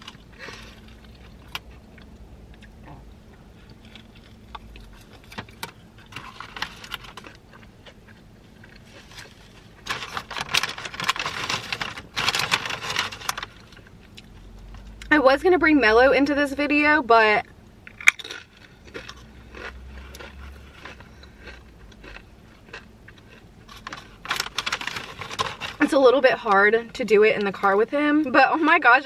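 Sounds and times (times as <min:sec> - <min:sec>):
soft eating sounds: 0:00.0 - 0:09.8, 0:18.3 - 0:25.2
foil wrapper crinkling: 0:08.6 - 0:13.9, 0:23.7 - 0:26.0
chips rustling in paper bag: 0:08.8 - 0:13.9, 0:23.7 - 0:25.9.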